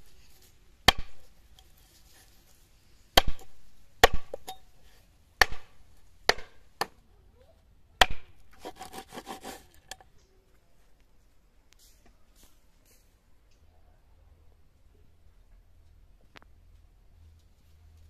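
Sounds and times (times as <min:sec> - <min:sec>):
cleaver chopping on wooden block: 0:00.9 - 0:01.2, 0:03.2 - 0:04.5, 0:05.4 - 0:05.7, 0:06.3 - 0:06.9.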